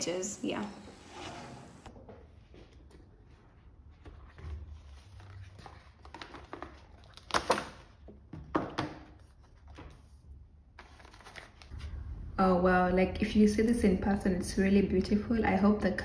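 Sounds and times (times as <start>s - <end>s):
cardboard tray sliding out: 0.9s - 1.9s.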